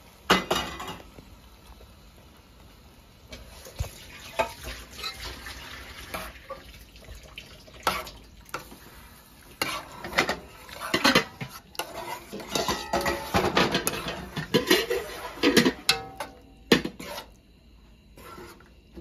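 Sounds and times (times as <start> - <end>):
metal spoon scraping a metal pot: 9.6 - 17.4, 18.2 - 18.7.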